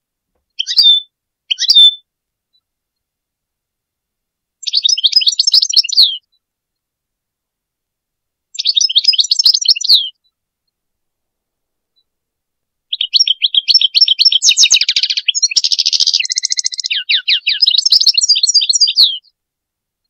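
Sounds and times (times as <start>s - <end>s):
goldfinch twittering song: 0.6s - 2.0s, 4.6s - 6.2s, 8.6s - 10.2s, 12.9s - 19.3s.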